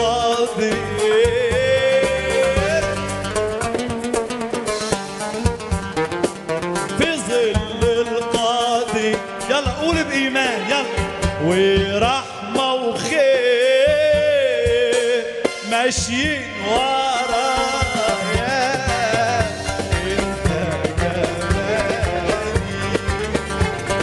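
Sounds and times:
man singing a hymn: 0:00.0 - 0:03.1, 0:07.0 - 0:23.2
plucked oud: 0:00.2 - 0:11.8, 0:18.2 - 0:24.0.

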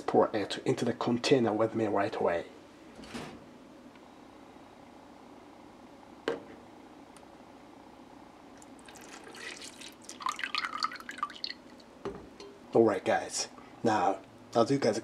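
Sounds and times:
liquid pouring and splashing: 0:08.6 - 0:11.9.

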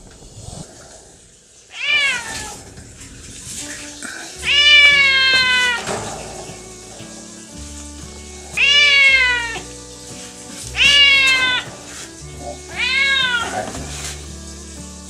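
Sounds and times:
cat meowing: 0:01.7 - 0:02.8, 0:03.6 - 0:07.5, 0:08.2 - 0:10.0, 0:10.7 - 0:14.1.

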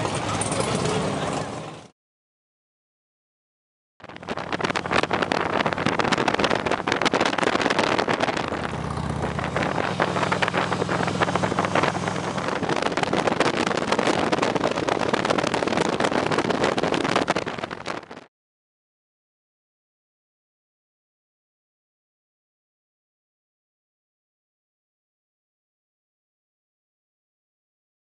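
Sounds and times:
motorcycle engine drone: 0:00.0 - 0:01.9, 0:04.0 - 0:18.3
wind rush on microphone: 0:04.0 - 0:18.3.

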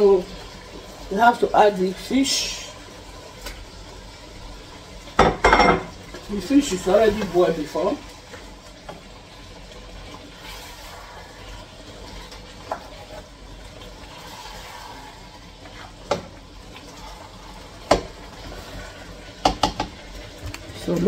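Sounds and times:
spoon knocking on pot: 0:19.4 - 0:20.0.

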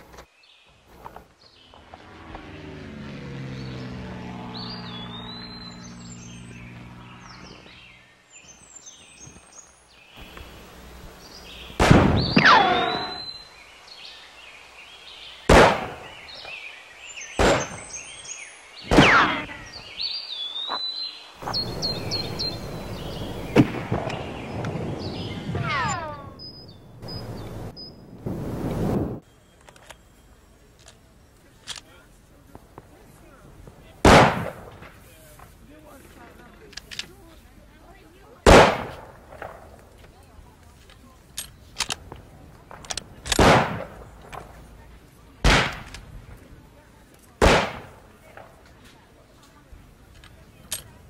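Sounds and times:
birdsong chirping: 0:00.0 - 0:34.0
gunshots: 0:11.8 - 0:13.2, 0:15.5 - 0:16.2, 0:17.4 - 0:17.9, 0:18.8 - 0:19.6, 0:21.4 - 0:24.6, 0:34.0 - 0:34.9, 0:38.4 - 0:39.7, 0:43.3 - 0:44.1, 0:45.4 - 0:46.0, 0:47.4 - 0:48.1
ricochet whine: 0:11.8 - 0:13.2.

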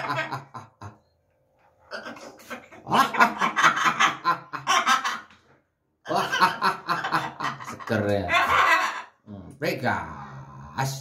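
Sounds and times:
parrot imitating laughter: 0:00.0 - 0:01.0, 0:01.9 - 0:05.3, 0:06.0 - 0:09.2.

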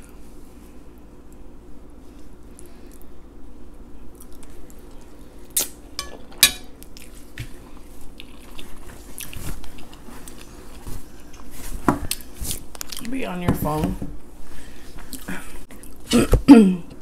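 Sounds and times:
person chewing with wet smacks: 0:04.0 - 0:05.6, 0:06.8 - 0:13.2, 0:15.0 - 0:16.2.

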